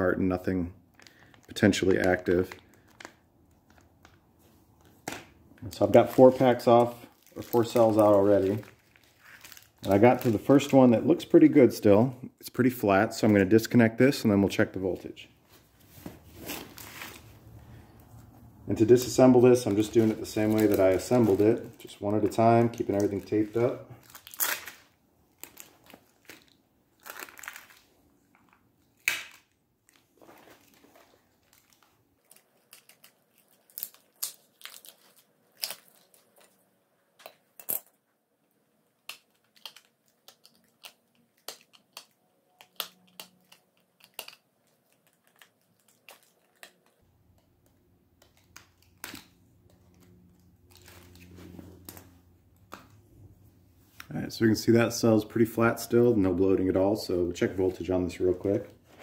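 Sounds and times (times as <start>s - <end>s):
tape and foil crinkling: 0.9s - 11.4s, 16.1s - 37.9s, 38.9s - 53.0s.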